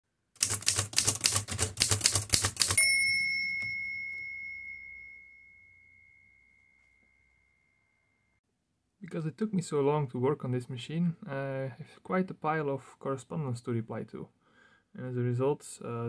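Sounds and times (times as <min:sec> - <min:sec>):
typewriter keystrokes clacking: 0:00.4 - 0:02.8
typewriter bell ding: 0:02.4 - 0:07.1.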